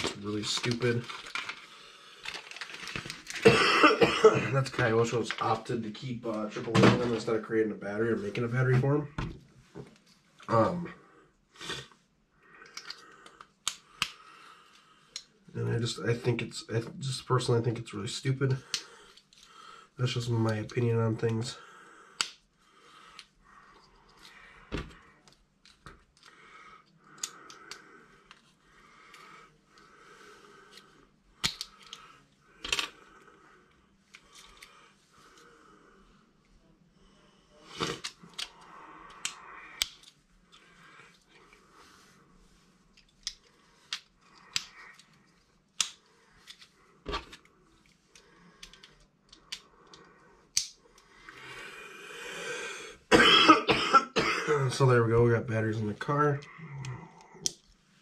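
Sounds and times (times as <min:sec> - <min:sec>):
plastic clicks of batteries inserted: 0:31.4 - 0:32.0.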